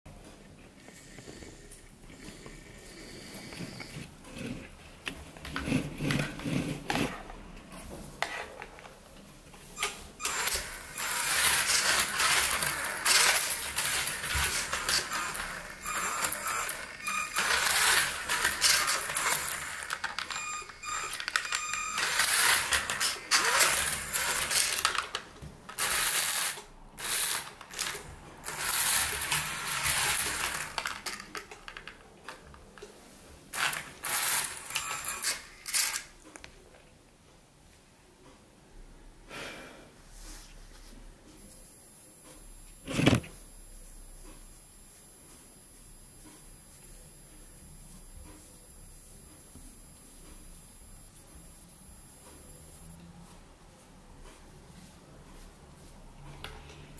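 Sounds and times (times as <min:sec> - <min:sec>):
toy car motor and gears: 0:09.8 - 0:32.6, 0:33.5 - 0:36.1
plastic clicking on tiled floor: 0:21.1 - 0:32.9.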